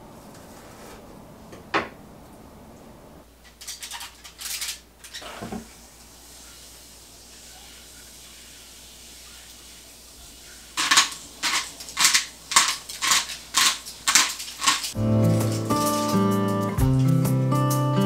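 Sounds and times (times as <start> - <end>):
pepper grinder grinding: 3.5 - 5.2, 10.8 - 16.4
acoustic guitar music: 14.9 - 18.0.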